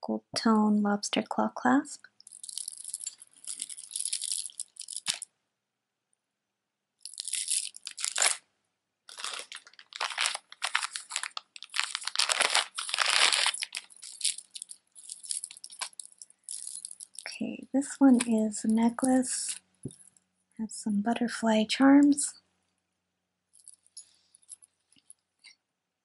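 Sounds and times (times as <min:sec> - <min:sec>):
plastic beads clattering: 0:02.2 - 0:05.3, 0:07.0 - 0:08.4, 0:09.1 - 0:17.4, 0:23.6 - 0:25.2.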